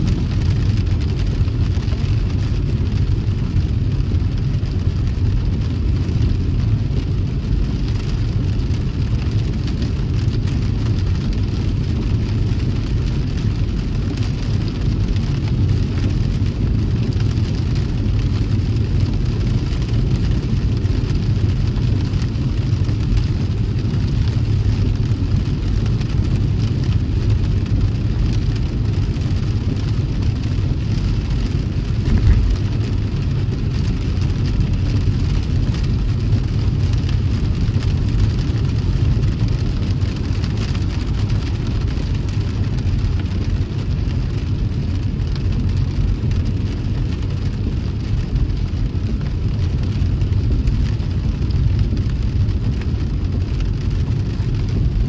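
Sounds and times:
car road and engine rumble: 0:00.0 - 0:55.0
rain and wet tyres hissing: 0:00.0 - 0:55.0
brief thump: 0:32.1 - 0:32.5.

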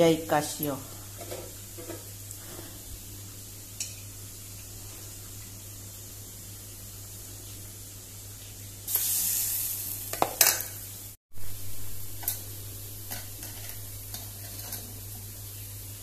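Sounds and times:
hot oil sizzling and popping: 0:00.0 - 0:16.0
loud hiss: 0:08.9 - 0:10.2.

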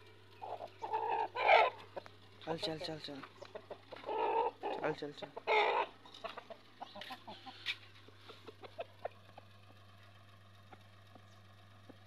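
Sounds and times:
rooster clucking softly: 0:02.8 - 0:09.8.

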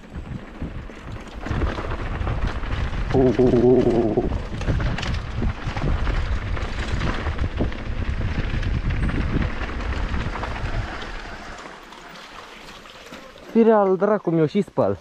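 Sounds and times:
wind buffeting microphone: 0:00.0 - 0:11.5
bike knocking and rattling: 0:00.0 - 0:13.9
tyres rumbling on stony ground: 0:00.0 - 0:15.0.

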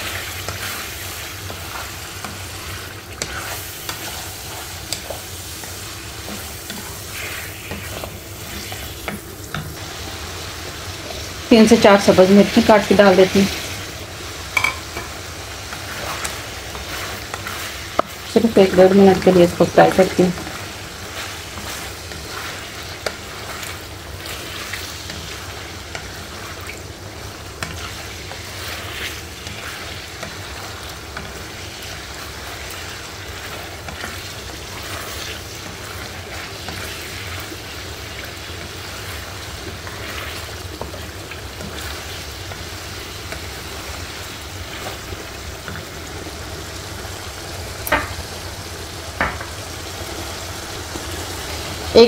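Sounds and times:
spatula scraping pan: 0:00.0 - 0:09.8, 0:14.6 - 0:26.6
food sizzling in hot oil: 0:00.0 - 0:52.0.

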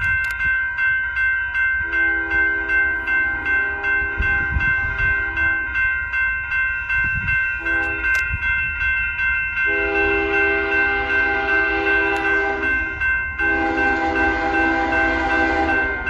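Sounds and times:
crossing warning bell dinging: 0:00.0 - 0:16.0
locomotive air horn: 0:01.8 - 0:05.8, 0:07.6 - 0:08.2, 0:09.7 - 0:16.0.

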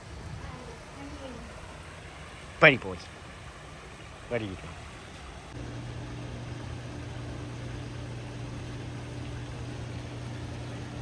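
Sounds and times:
waterfall hissing: 0:00.0 - 0:05.6
low motor hum: 0:04.6 - 0:11.0.

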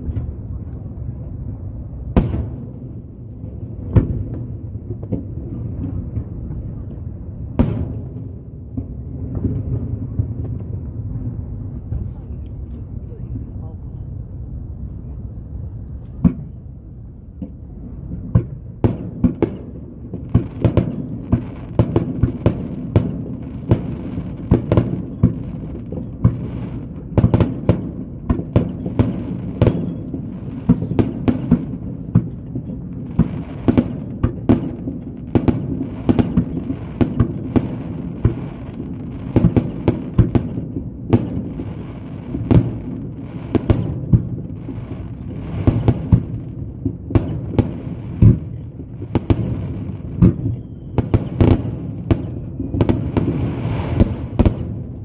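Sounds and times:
fireworks booming: 0:00.0 - 0:14.8, 0:15.6 - 0:55.0
background rumble: 0:00.0 - 0:55.0.

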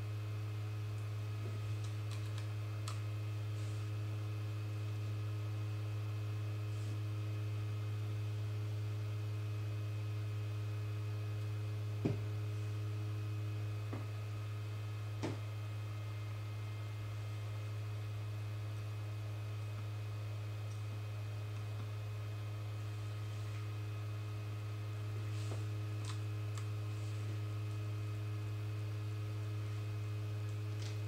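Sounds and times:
electrical mains hum: 0:00.0 - 0:31.0.

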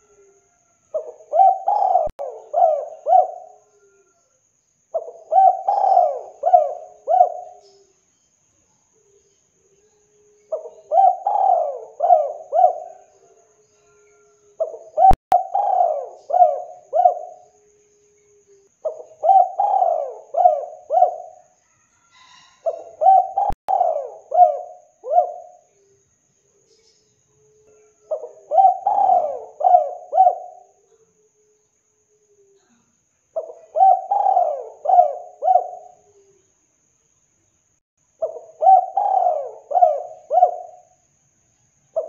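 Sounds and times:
dove cooing: 0:00.0 - 0:04.2, 0:04.9 - 0:07.8, 0:10.2 - 0:25.9, 0:27.4 - 0:31.6, 0:33.4 - 0:36.4, 0:38.2 - 0:41.0.

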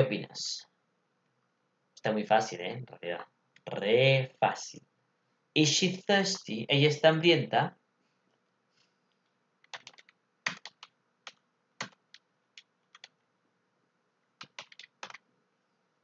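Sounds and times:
keyboard typing clicks: 0:09.6 - 0:13.2, 0:14.4 - 0:15.2.

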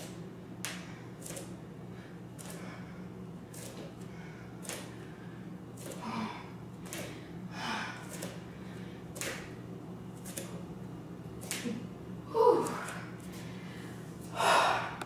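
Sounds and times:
woman breathing sharply: 0:13.4 - 0:15.0.

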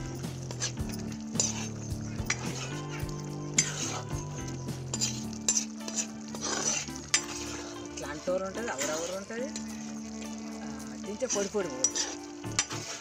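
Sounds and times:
curry sizzling: 0:00.0 - 0:13.0
ladle scraping pan: 0:00.0 - 0:13.0
ladle clinking against pan: 0:00.6 - 0:04.3, 0:04.9 - 0:07.4.

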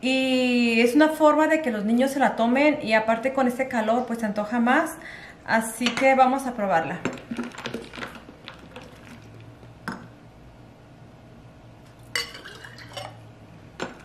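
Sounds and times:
liquid pouring into a glass: 0:07.1 - 0:09.7, 0:12.1 - 0:13.2
metal ladle clinking against glass jar: 0:12.2 - 0:13.2.

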